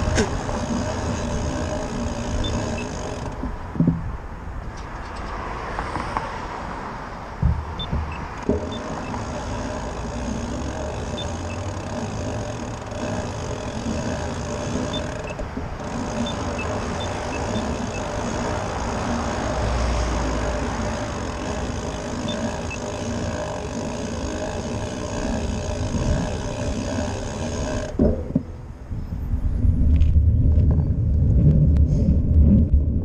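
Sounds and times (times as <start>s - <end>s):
cars driving by: 0.0s - 26.0s
heavy vehicle rumble: 0.0s - 33.0s
sharp knocks: 3.4s - 4.1s, 7.4s - 9.0s.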